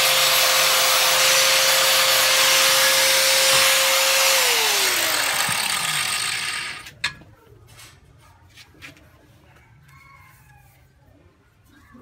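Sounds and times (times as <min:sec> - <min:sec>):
angle grinder spinning down: 0:00.0 - 0:07.0.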